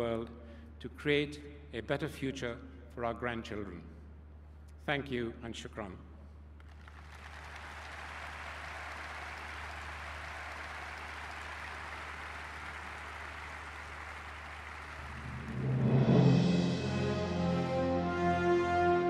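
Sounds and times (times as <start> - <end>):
large audience applauding: 6.6 - 16.0.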